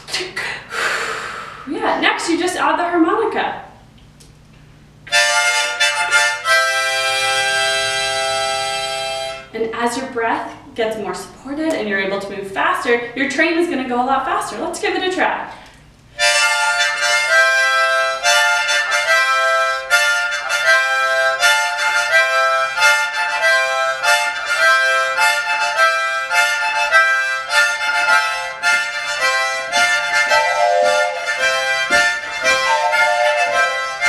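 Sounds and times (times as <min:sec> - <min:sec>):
harmonicas playing rhythmic chords: 0:05.1 - 0:09.5, 0:16.2 - 0:34.0.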